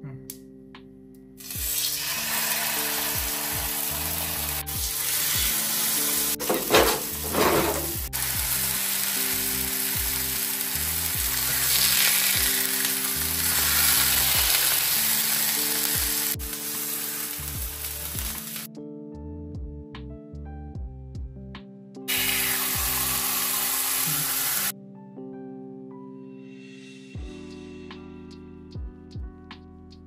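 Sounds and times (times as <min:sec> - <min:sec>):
food sizzling in a pan: 0:01.4 - 0:18.7, 0:22.1 - 0:24.7
music with stepping bass line: 0:06.4 - 0:08.6, 0:09.4 - 0:11.5, 0:17.5 - 0:18.4, 0:19.4 - 0:20.2, 0:20.8 - 0:21.6, 0:27.2 - 0:30.0.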